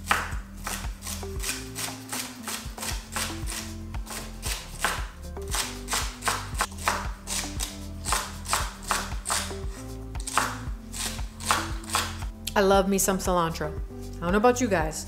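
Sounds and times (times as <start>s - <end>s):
vegetables chopped on cutting board: 0.0s - 9.6s, 10.2s - 12.2s
background music with bass line: 0.0s - 15.0s.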